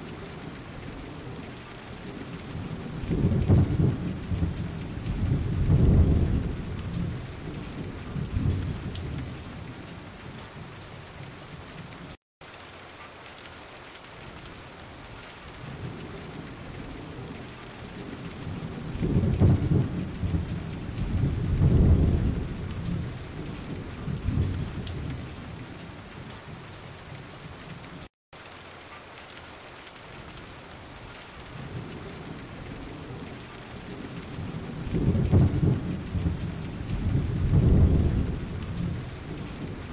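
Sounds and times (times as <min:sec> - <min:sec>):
wind rumbling on microphone: 0:03.1 - 0:09.4, 0:19.0 - 0:25.2, 0:34.0 - 0:39.9.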